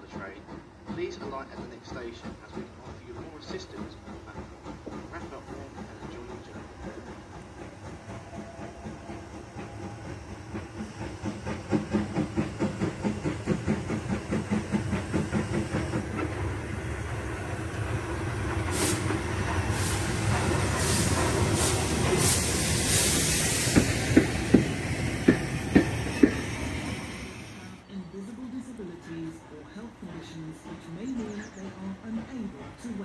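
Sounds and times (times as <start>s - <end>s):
steam locomotive chuffing: 0.0s - 33.0s
hissing exhaust strokes: 8.1s - 27.8s.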